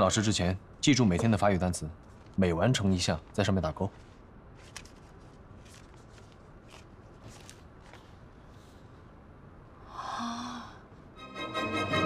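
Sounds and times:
paper sheets rustling: 3.8 - 8.2.

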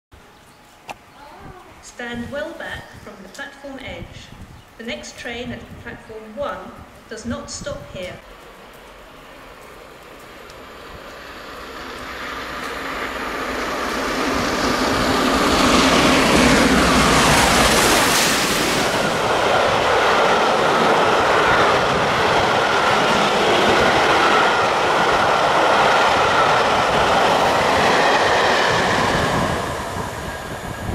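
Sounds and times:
steam locomotive passing: 8.2 - 30.9
hissing rush: 10.6 - 30.9.

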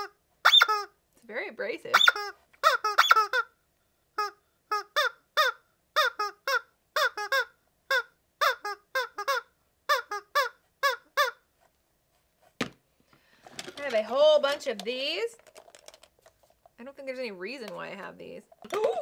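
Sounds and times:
rubber chicken toy squawks: 0.0 - 1.0, 1.9 - 11.5.

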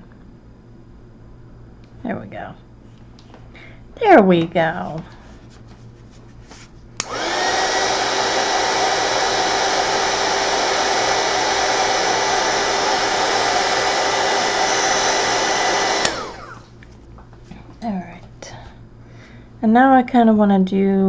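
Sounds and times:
heat gun switch click: 7.0 - 7.2
heat gun motor whine: 7.0 - 16.8.

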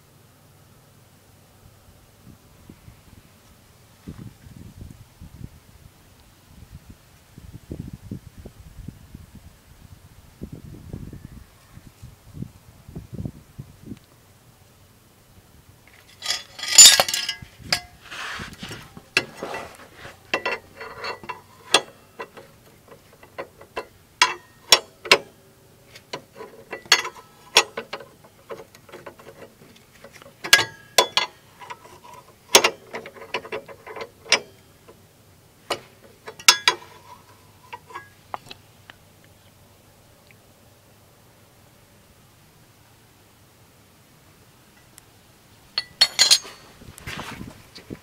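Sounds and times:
rustling and clattering: 15.9 - 35.0, 35.6 - 38.7, 45.8 - 48.0
wrench metallic clicks: 16.1 - 18.0, 20.3 - 25.3, 26.0 - 35.0, 35.7 - 38.6, 45.8 - 46.6.

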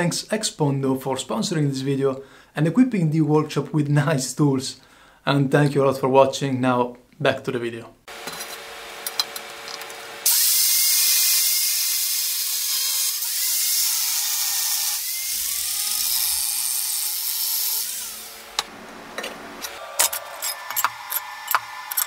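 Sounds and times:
angle grinder cutting steel: 8.1 - 22.0.

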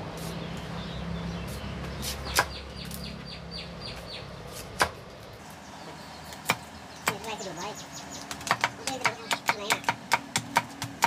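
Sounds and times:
knife knocking on bamboo: 8.2 - 11.0.

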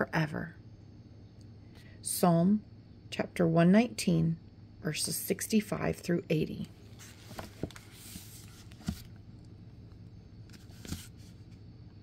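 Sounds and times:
paper pages rustling: 6.9 - 11.6.

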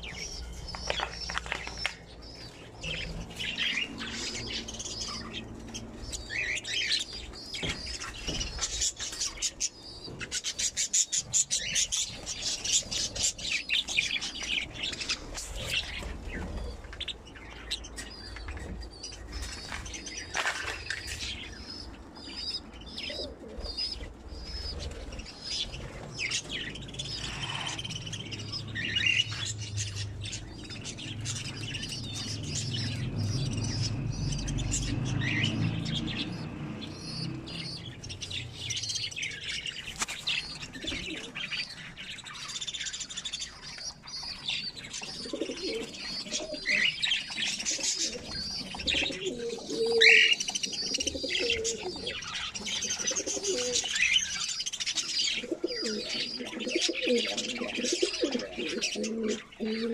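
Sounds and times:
budgerigars chattering: 0.0 - 59.9
low cooing calls: 20.3 - 39.8, 40.4 - 41.8, 44.4 - 54.4, 55.2 - 59.9.

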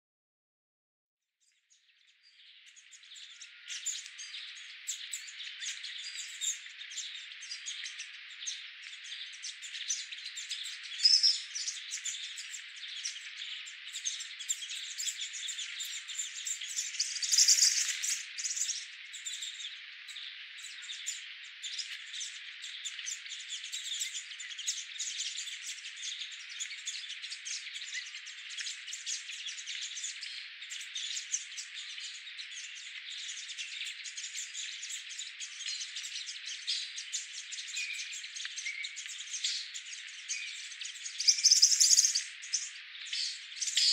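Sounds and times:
small birds chirping: 1.4 - 43.9.

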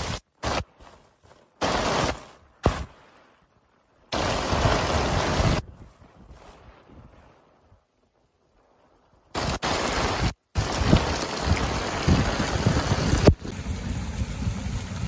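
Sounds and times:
heavy rain downpour: 1.6 - 2.9, 4.1 - 5.6, 9.4 - 15.0
wind buffeting microphone: 10.6 - 15.0.

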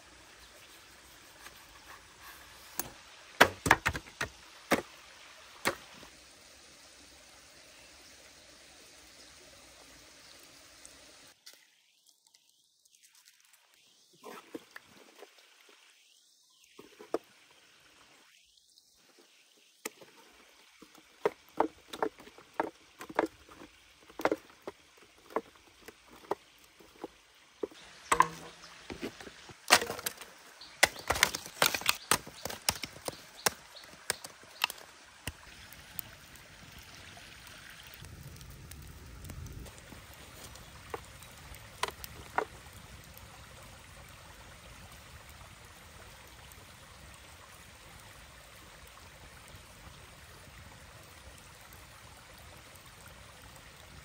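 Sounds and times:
stream running: 0.0 - 54.0
chopping wood: 2.8 - 4.9, 28.0 - 35.4.

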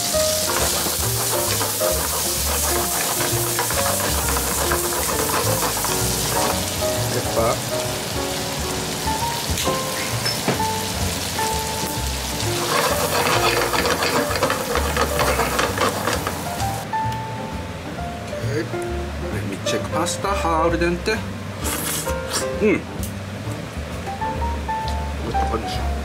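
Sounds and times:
chopsticks stirring: 0.0 - 7.6, 12.4 - 16.8
sauce sizzling in a frying pan: 0.0 - 16.9
background music with held notes: 0.0 - 26.0.

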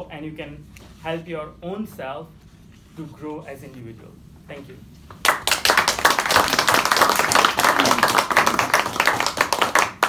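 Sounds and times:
small group applauding: 5.2 - 10.0.

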